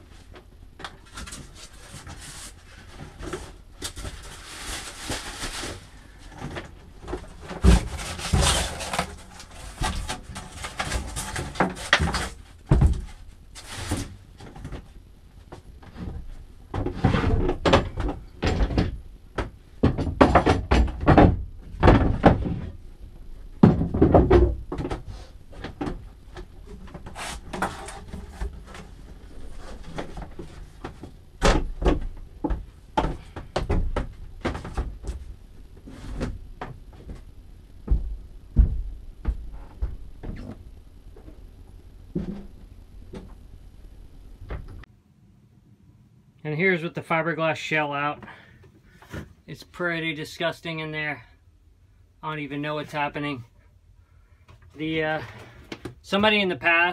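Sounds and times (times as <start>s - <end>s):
knocks and thumps: 5.0s - 13.2s, 13.8s - 22.9s, 23.5s - 41.5s, 42.1s - 43.4s, 44.3s - 44.9s
fiberglass scraping against wood: 7.2s - 14.2s, 26.6s - 30.8s.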